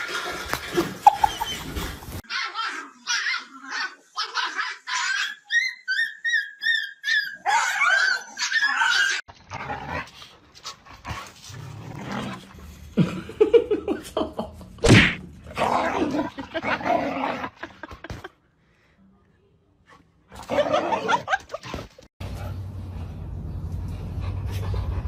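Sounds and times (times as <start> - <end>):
dogs barking and growling: 0.0 - 13.8, 15.1 - 18.3, 20.3 - 22.7
high yelping cries: 2.3 - 9.2.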